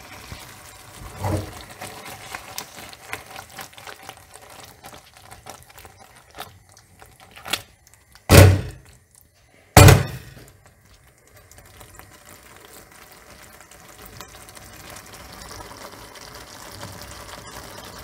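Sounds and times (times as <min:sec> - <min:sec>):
pasta stirred clicking and scraping: 0:00.0 - 0:09.5, 0:10.4 - 0:18.0
loud thunks: 0:08.3 - 0:08.8, 0:09.8 - 0:10.3.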